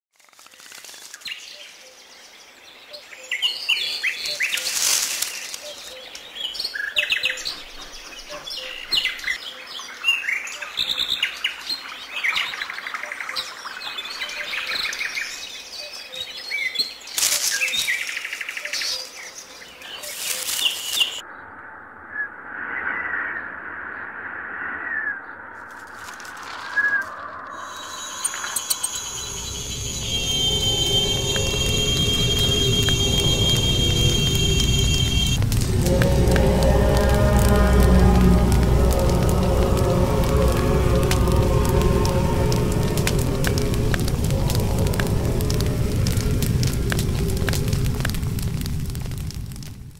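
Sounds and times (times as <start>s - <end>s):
rushes of noise: 25.4s - 49.9s.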